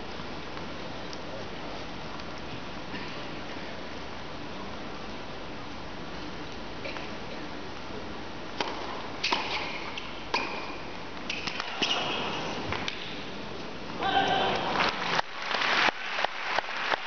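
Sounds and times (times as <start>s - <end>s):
crowd and room hush: 12.1s - 17.0s.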